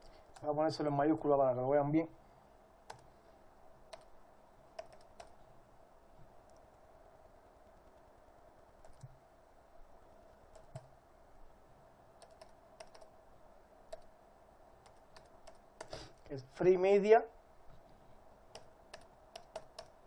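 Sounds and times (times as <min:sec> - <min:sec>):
keyboard keystrokes: 0:04.8 - 0:05.4, 0:12.2 - 0:13.1, 0:18.6 - 0:20.0.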